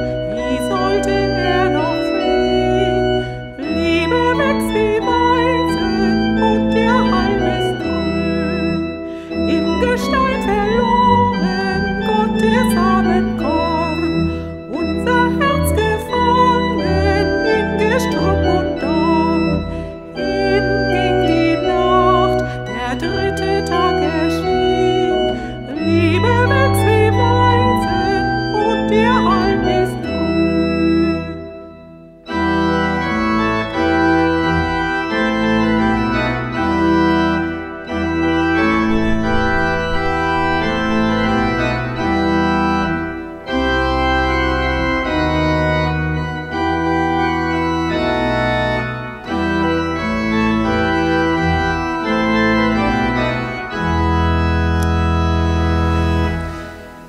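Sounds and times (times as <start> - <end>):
pipe organ chords: 0.0 - 57.0.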